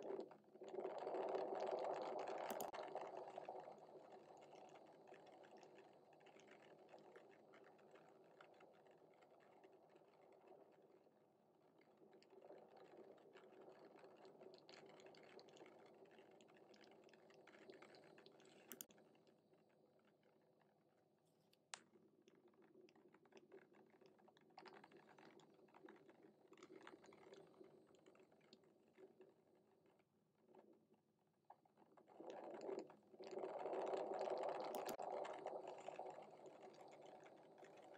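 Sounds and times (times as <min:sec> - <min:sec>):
small clicks: 0:02.2 - 0:02.8, 0:13.4 - 0:19.4, 0:32.3 - 0:37.9.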